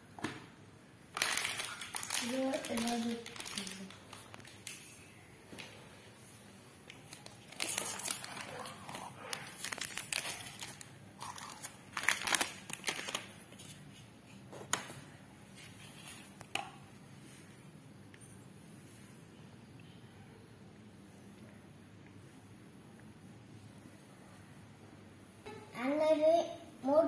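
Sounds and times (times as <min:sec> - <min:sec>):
plastic wrapping crinkling: 0:01.1 - 0:05.1, 0:06.8 - 0:14.0.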